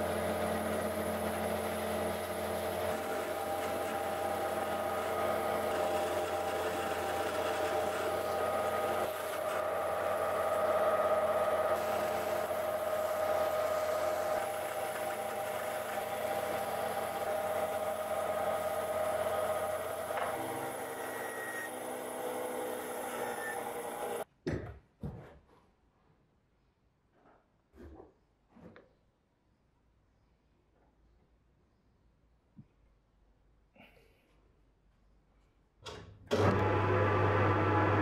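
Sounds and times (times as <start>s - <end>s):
bandsaw cutting wood: 0.0s - 24.2s, 36.3s - 38.0s.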